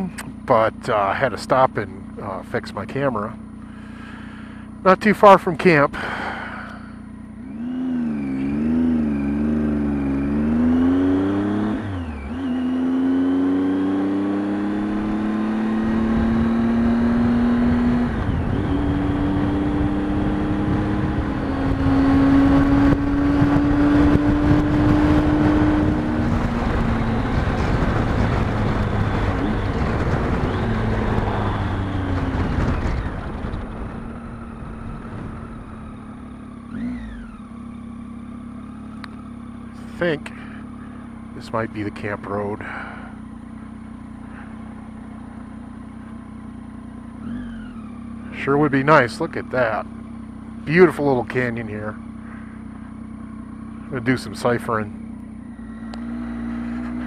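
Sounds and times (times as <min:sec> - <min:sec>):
motorcycle engine accelerating: 0:00.0 - 0:57.0
wind rushing over microphone: 0:14.6 - 0:36.1.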